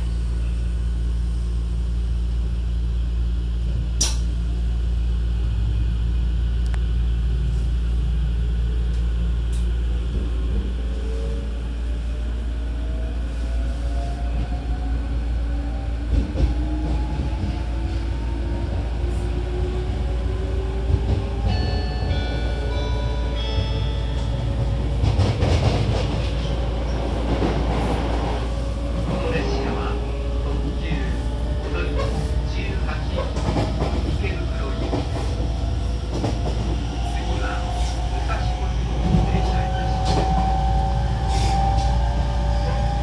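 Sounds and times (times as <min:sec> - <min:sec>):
electric train humming: 0:00.0 - 0:43.0
sharp click: 0:04.0 - 0:04.3.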